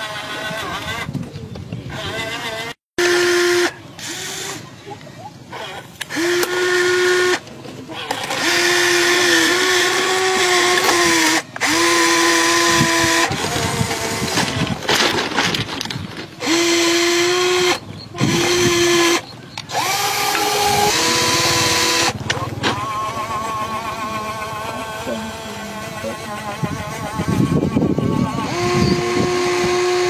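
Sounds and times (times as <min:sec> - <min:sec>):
small electric motors whining: 0:00.0 - 0:30.0
ballast stones clicking and grinding: 0:07.5 - 0:22.8.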